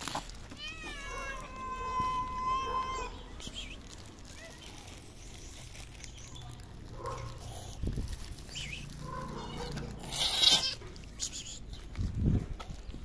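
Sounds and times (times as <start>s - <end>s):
cats meowing: 0.0s - 4.5s, 8.8s - 11.7s.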